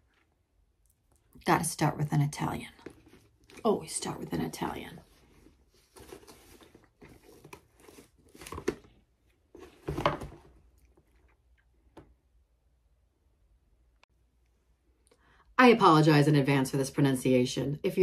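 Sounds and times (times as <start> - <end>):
handbag contents rustling: 5.0 - 8.9.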